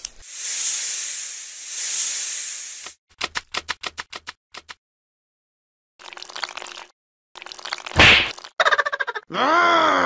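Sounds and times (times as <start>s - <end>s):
loud hiss: 0.2s - 3.0s.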